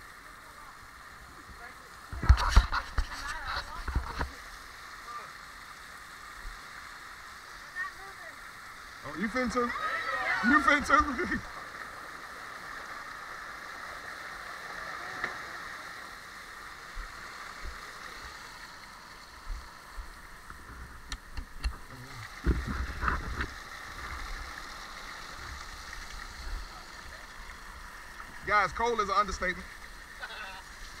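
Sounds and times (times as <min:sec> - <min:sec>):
water rushing down a slide: 0:09.0 - 0:19.8.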